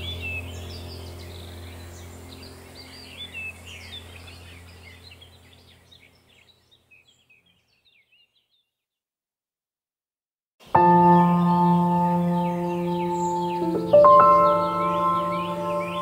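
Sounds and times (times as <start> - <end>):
steady low drone: 0.0 - 5.5, 10.8 - 16.0
birds chirping: 0.0 - 8.8, 10.6 - 16.0.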